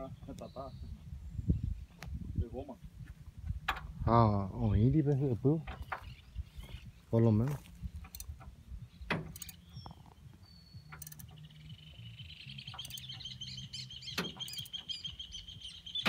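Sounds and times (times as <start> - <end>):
sharp clicks: 8.0 - 8.5, 9.1 - 10.0, 10.8 - 11.4, 12.6 - 13.4, 14.1 - 14.9
bird calling in high trill: 12.6 - 16.0.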